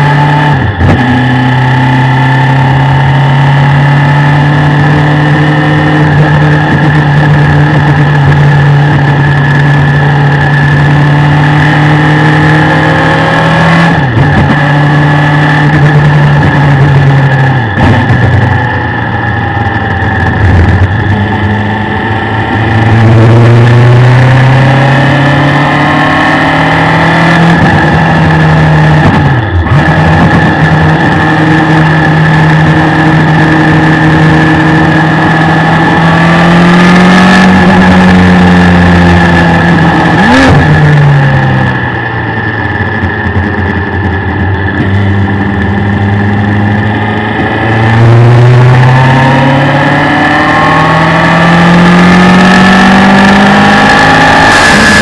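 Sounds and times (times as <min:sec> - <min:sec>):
race car engine under way: 0:00.0 - 0:55.0.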